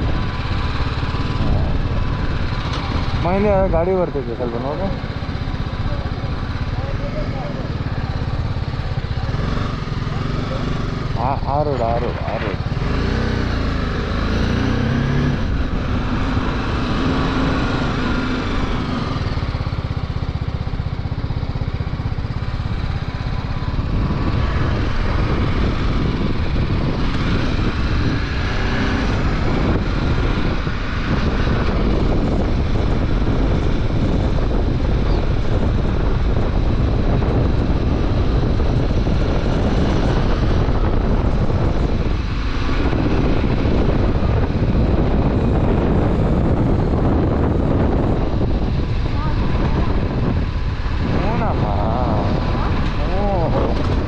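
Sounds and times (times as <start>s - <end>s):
motorcycle engine running: 0.0s - 54.0s
road noise: 0.0s - 54.0s
wind rushing: 22.4s - 54.0s.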